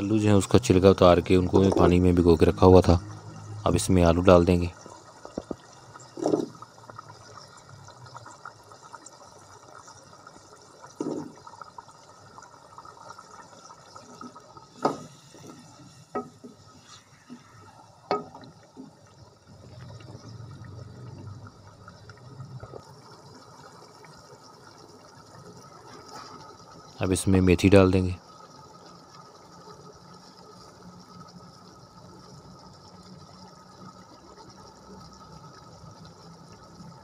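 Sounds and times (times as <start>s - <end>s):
gravy bubbling in metal pan: 0.0s - 37.0s
stirring knocks and clicks: 1.5s - 2.3s, 5.2s - 6.7s, 10.9s - 11.5s, 14.2s - 19.0s.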